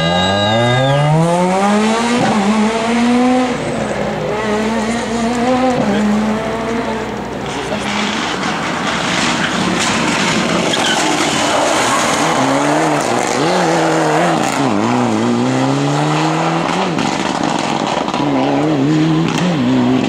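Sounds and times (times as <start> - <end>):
rally car engine revving: 0.0 - 20.0
tyres on gravel: 7.0 - 14.8, 16.7 - 20.0.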